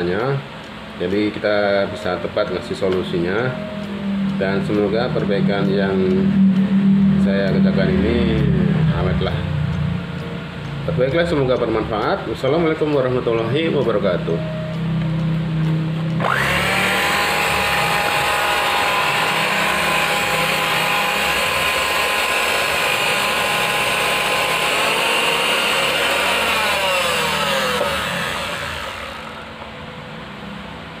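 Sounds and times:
hand mixer motor whining: 0:16.2 - 0:29.6.

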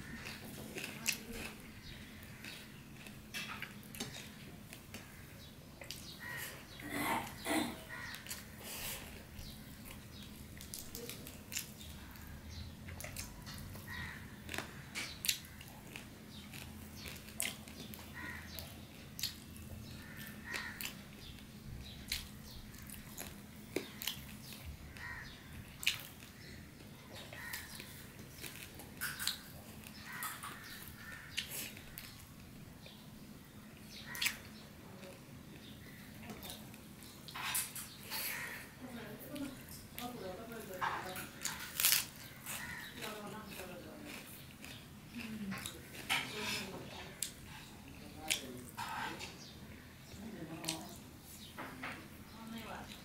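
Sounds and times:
person chewing: 0:00.0 - 0:33.0, 0:34.0 - 0:38.7, 0:41.3 - 0:46.3
fingers mixing rice on a plate: 0:34.0 - 0:49.5.

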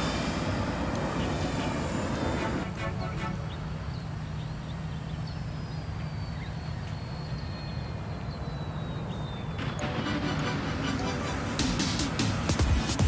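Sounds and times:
steady low rumble: 0:00.0 - 0:06.7.

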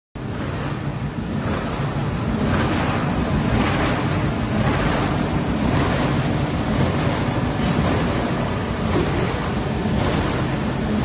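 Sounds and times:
baler machine rushing noise: 0:00.2 - 0:11.0
low machine hum: 0:00.2 - 0:11.0.

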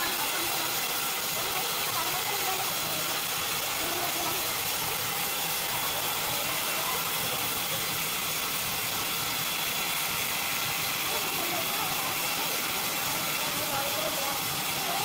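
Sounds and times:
band sawmill hissing: 0:00.0 - 0:15.0.

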